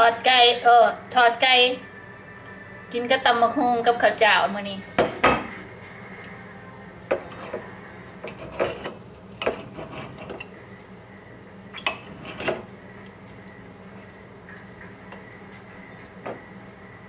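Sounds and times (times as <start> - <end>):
faint steady hum: 0.0 - 17.0
plates and spoon clinking: 7.0 - 10.6, 11.8 - 12.7.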